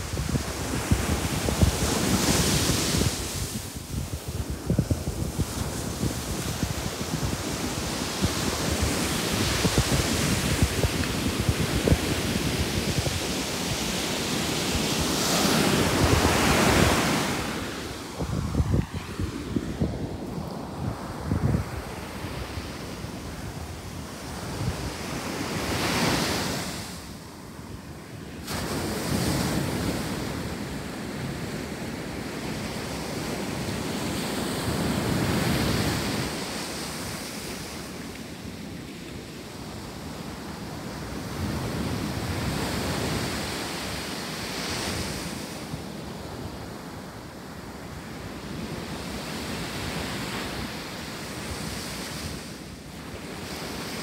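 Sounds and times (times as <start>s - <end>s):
wind buffeting microphone: 0.0s - 27.0s
ocean surf breaking: 0.0s - 27.6s.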